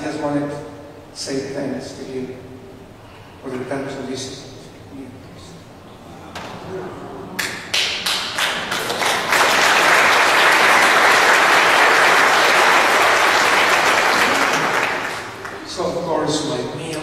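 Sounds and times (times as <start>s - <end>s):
audience applauding: 7.4s - 15.8s.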